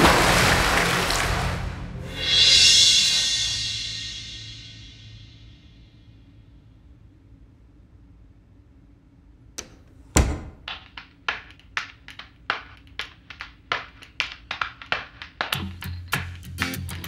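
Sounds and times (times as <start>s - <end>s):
heavy thud: 9.6s - 10.7s
sharp clicks and taps: 9.6s - 17.0s.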